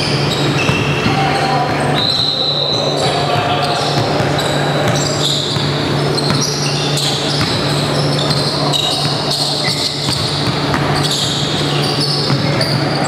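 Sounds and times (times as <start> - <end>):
sneakers squeaking on floor: 0.0 - 13.0
basketball bouncing on hardwood: 7.3 - 7.6.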